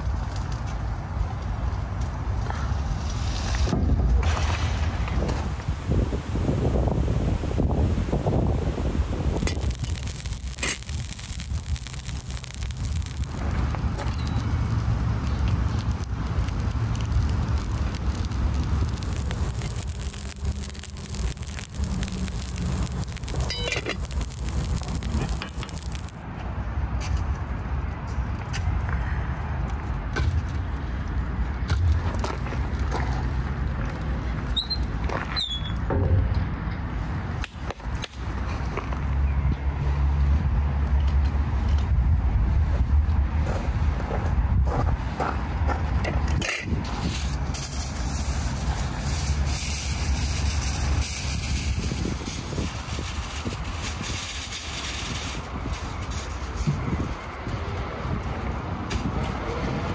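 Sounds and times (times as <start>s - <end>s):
low steady fire rumble: 0.0s - 59.9s
wood fire pops and knocks: 9.3s - 26.2s, 31.6s - 35.2s
aluminium foil crinkling: 9.4s - 26.2s, 46.9s - 57.6s.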